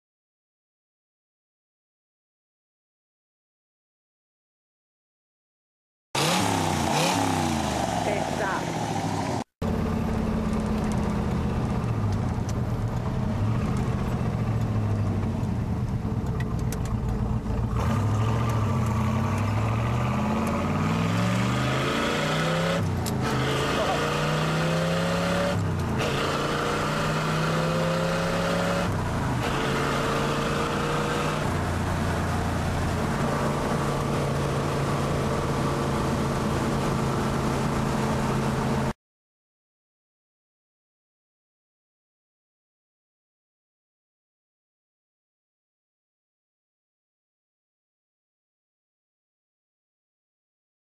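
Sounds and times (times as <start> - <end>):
car engine accelerating: 6.2 - 38.9.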